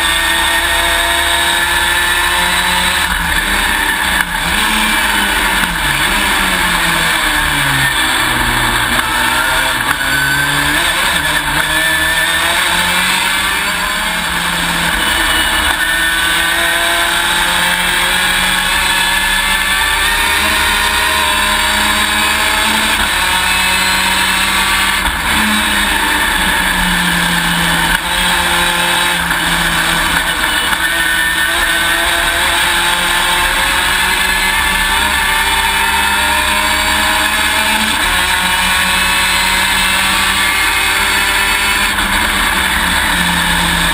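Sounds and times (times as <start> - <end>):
race car engine revving: 0.0 - 43.9.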